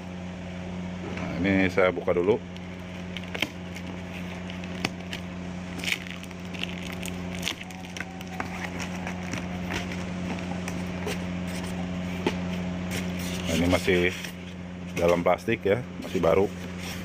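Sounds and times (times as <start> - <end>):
low background hum: 0.0 - 17.0
shrink wrap and cardboard crinkling: 2.6 - 14.4.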